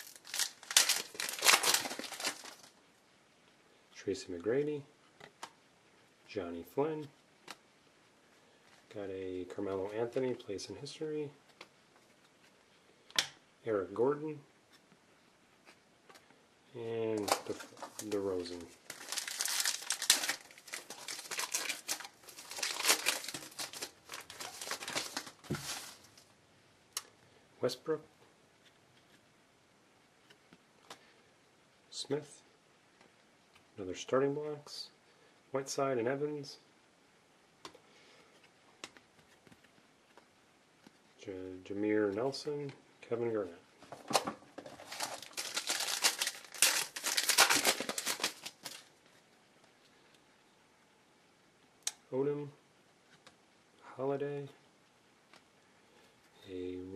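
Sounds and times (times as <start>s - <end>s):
foil wrapper crinkling: 0.0s - 2.8s, 17.2s - 26.3s, 44.7s - 48.9s.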